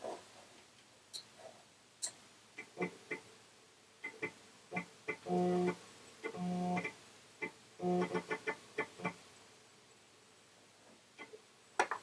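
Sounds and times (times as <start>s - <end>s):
floppy drive buzzing tone: 2.0s - 3.4s, 4.0s - 9.4s.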